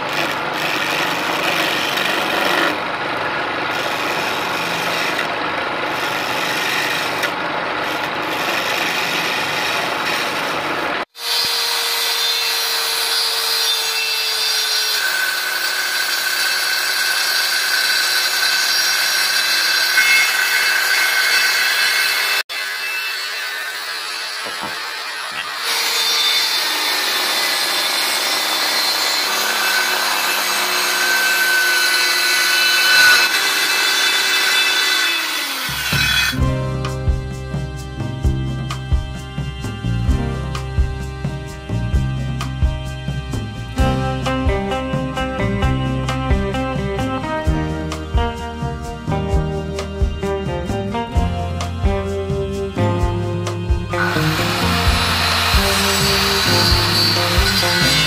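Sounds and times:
chisel scraping spinning wood: 0.0 - 22.4, 52.2 - 58.0
lathe motor: 0.0 - 36.4, 53.7 - 58.0
circular saw cutting wood: 0.0 - 58.0.

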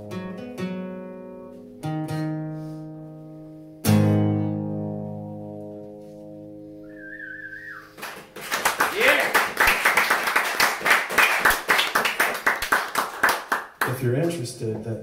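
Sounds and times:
acoustic guitar strumming: 0.0 - 8.0.

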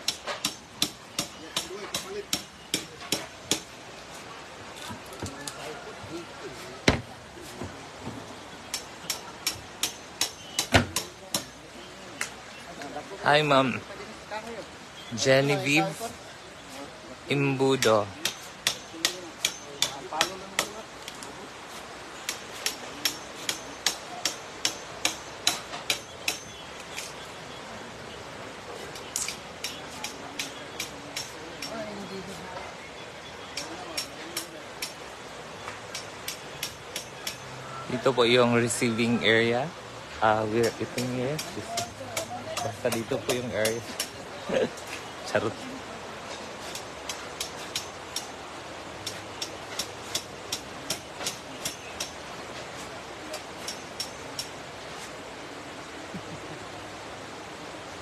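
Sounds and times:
steady background hiss: 0.0 - 58.0
hammer striking nails into wood: 8.7 - 11.5.

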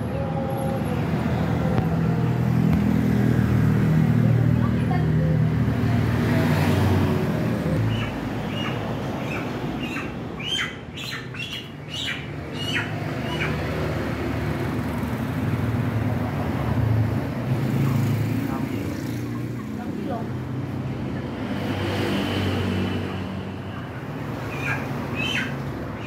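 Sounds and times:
chickens squawking: 7.5 - 14.0, 24.2 - 26.0.

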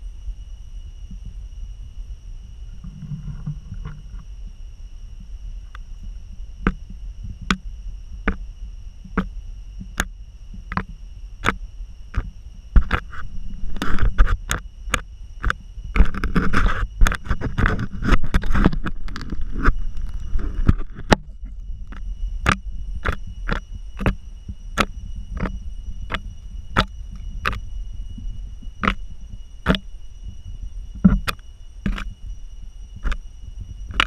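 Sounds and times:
steady high whine: 0.0 - 34.0
lizard snout knocking and scraping: 2.8 - 4.2, 10.7 - 24.2, 29.6 - 29.9, 31.0 - 32.1.

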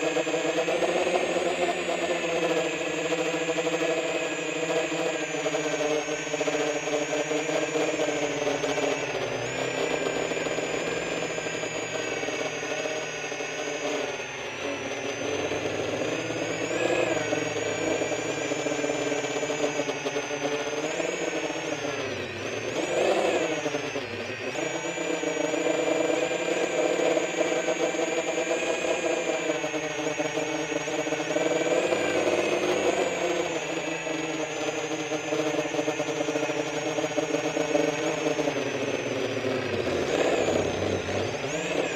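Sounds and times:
drone propellers whining: 0.0 - 41.9.

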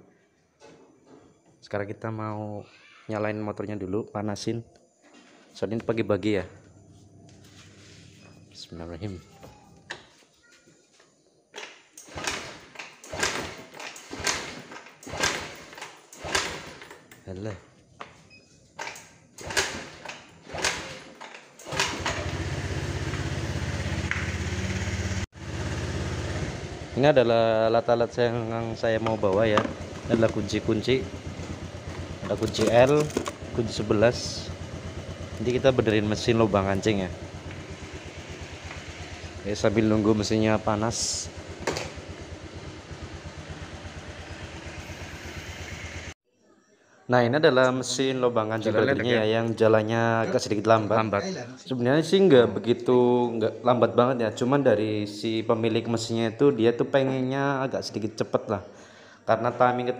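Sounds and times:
scooter engine cranking: 11.6 - 17.2, 18.8 - 27.2, 28.2 - 46.2
scooter engine idling: 21.8 - 27.3, 27.9 - 46.2.

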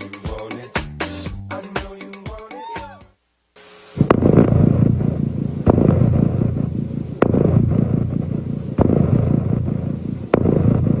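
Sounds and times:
dense low rumble: 4.0 - 11.0
sharp hits: 4.0 - 11.0.

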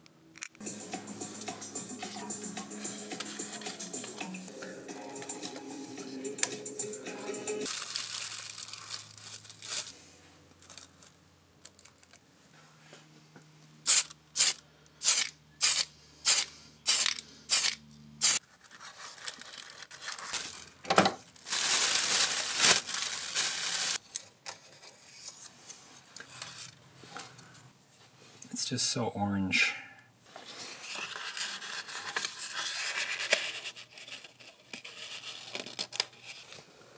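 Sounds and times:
spray paint can spraying: 13.8 - 18.4.

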